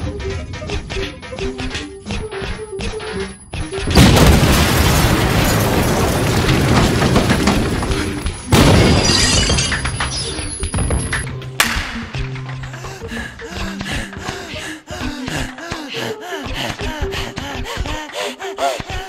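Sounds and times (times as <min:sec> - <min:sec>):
loud crash of noise: 0:04.0 - 0:09.8.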